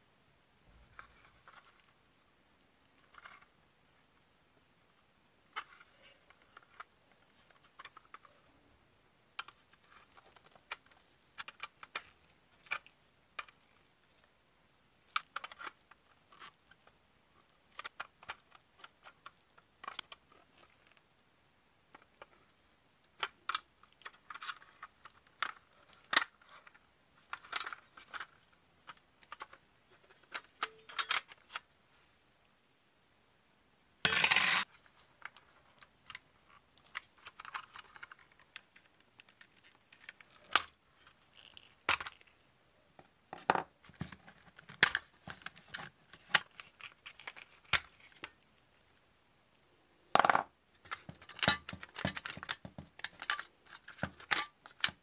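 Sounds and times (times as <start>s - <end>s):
toy parts clicking and tapping: 34.1s - 34.7s, 50.2s - 55.0s.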